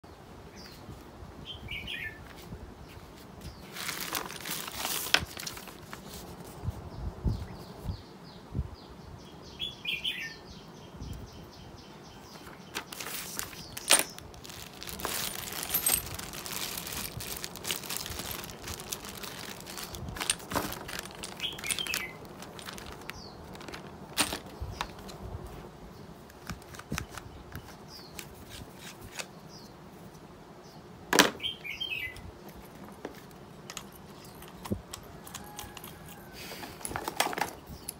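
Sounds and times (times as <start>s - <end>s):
plastic bag crinkling: 3.7s - 6.2s, 12.8s - 25.1s.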